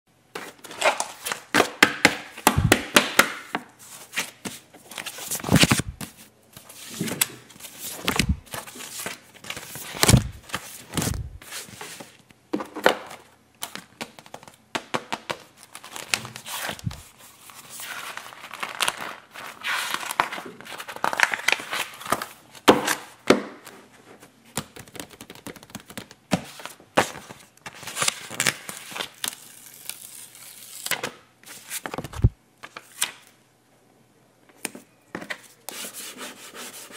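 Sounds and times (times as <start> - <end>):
paper sheets rustling and crinkling: 3.8 - 14.6, 15.3 - 23.1, 23.8 - 33.2.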